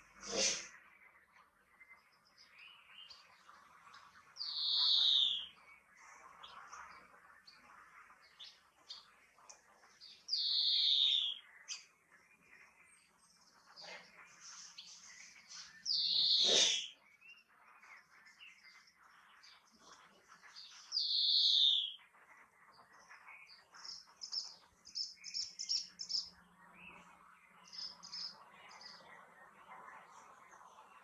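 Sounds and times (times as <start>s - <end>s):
high bird twittering: 1.8s - 22.0s, 23.0s - 31.0s
greenfinch wheezy notes: 16.1s - 17.0s.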